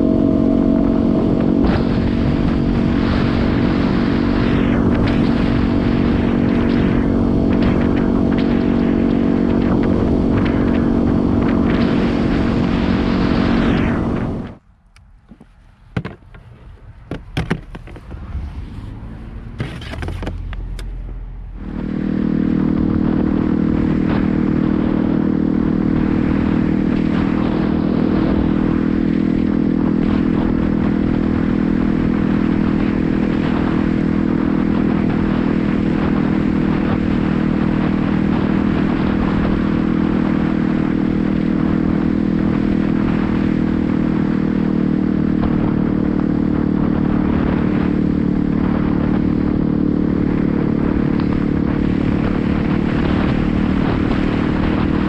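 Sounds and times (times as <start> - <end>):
rushing noise: 0.0 - 14.7, 17.0 - 44.2
motorcycle engine cruising: 0.0 - 55.0
scattered clicks and knocks: 15.3 - 16.4, 17.1 - 18.1.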